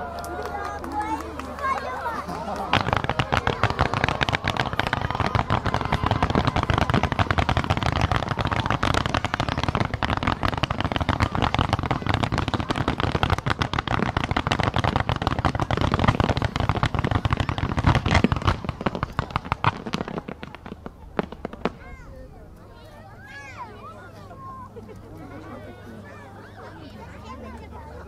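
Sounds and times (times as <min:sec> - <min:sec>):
fireworks bangs and crackles: 0:00.0 - 0:22.4.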